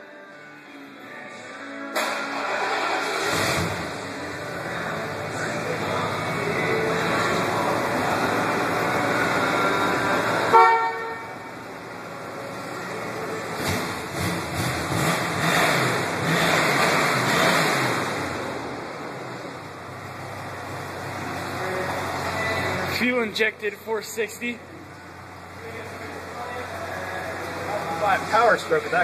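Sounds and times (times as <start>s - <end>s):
vehicle engine revving: 2.0s - 23.4s.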